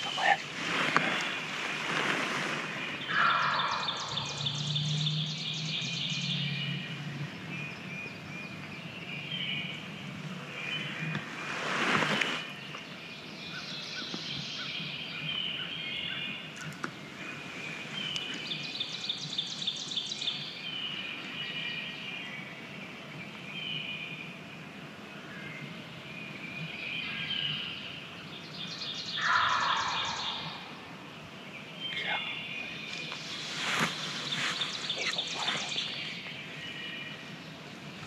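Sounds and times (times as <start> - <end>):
turkey gobbling: 0.0 - 0.4, 3.1 - 3.9, 29.2 - 30.5
songbirds chirping and trilling: 0.0 - 38.0.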